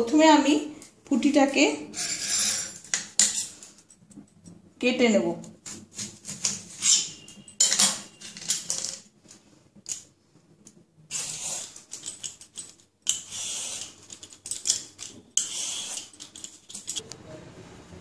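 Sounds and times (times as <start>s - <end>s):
vegetable peeler scraping gourd skin: 11.1s - 11.9s, 13.1s - 14.1s, 15.4s - 16.3s.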